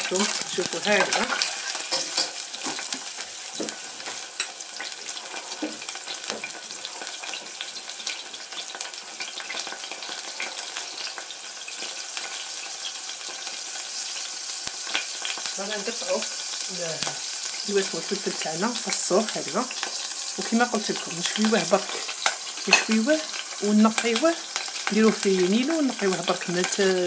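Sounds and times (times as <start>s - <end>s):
garlic sizzling in hot oil: 0.0s - 27.0s
metal spoon clinking against pan: 0.8s - 2.8s, 22.2s - 23.1s.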